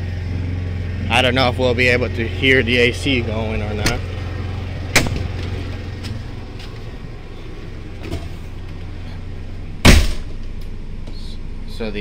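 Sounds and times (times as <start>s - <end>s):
low mechanical hum: 0.0s - 12.0s
faint footsteps: 5.2s - 9.2s.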